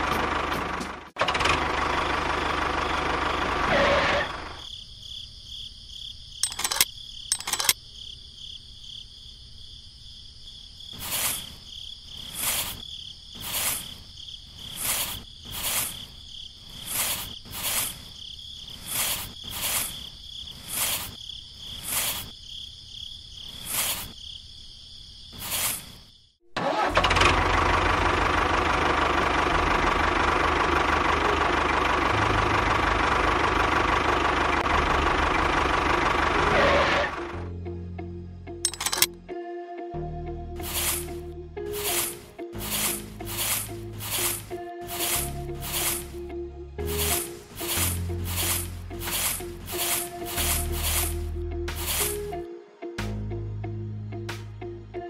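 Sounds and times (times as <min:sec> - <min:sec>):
toy tractor engine running: 0:01.2 - 0:04.6, 0:06.4 - 0:07.8, 0:26.6 - 0:37.2, 0:38.7 - 0:39.1, 0:40.6 - 0:41.1, 0:41.8 - 0:46.2, 0:46.9 - 0:52.2
sand scooped into plastic trolley: 0:11.0 - 0:11.5, 0:12.3 - 0:12.8, 0:13.4 - 0:13.9, 0:14.7 - 0:16.0, 0:16.8 - 0:18.0, 0:18.8 - 0:20.0, 0:20.6 - 0:21.2, 0:21.8 - 0:22.3, 0:23.6 - 0:24.1, 0:25.4 - 0:25.9, 0:40.6 - 0:46.2, 0:46.8 - 0:52.3.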